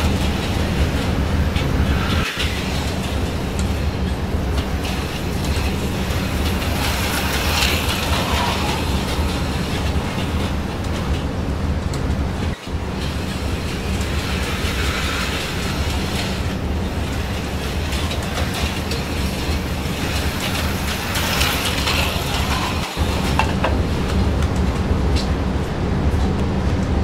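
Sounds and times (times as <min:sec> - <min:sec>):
model train wheels rumbling: 0:00.0 - 0:25.6.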